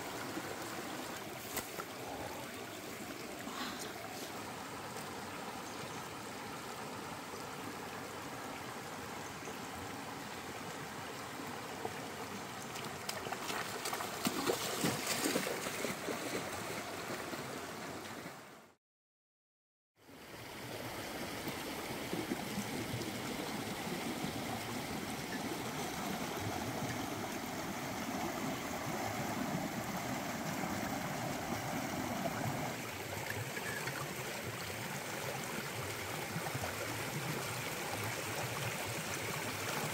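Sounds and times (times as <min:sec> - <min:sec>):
stream babbling over stones: 0:00.0 - 0:18.0, 0:20.5 - 0:39.9
water splashing: 0:12.8 - 0:17.1.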